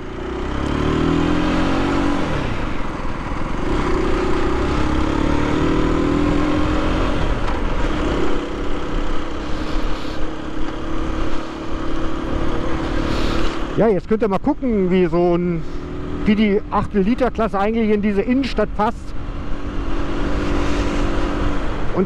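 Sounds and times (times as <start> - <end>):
motorcycle engine accelerating: 0.0 - 22.0.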